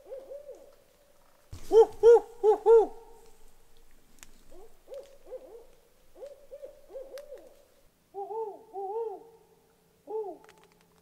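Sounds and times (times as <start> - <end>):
owls hooting: 1.6 - 3.1, 4.5 - 9.4.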